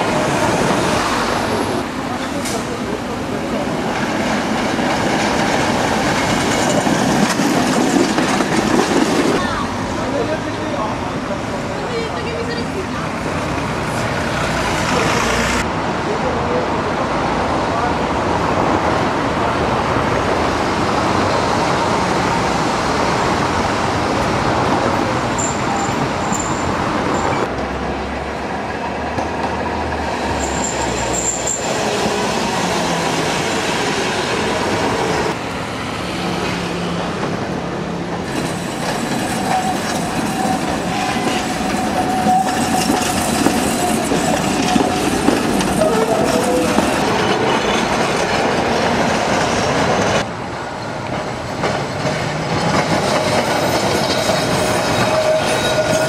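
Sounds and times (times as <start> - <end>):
tram clattering on rails: 0.0 - 56.0
high-pitched wheel squeals: 25.4 - 27.5, 30.4 - 31.9, 39.3 - 45.1, 53.6 - 56.0.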